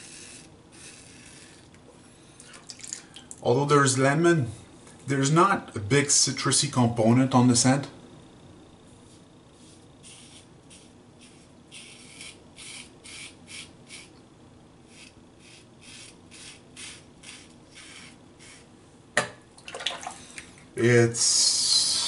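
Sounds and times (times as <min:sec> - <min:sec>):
razor scraping stubble: 0:09.1 - 0:14.2, 0:14.9 - 0:18.7.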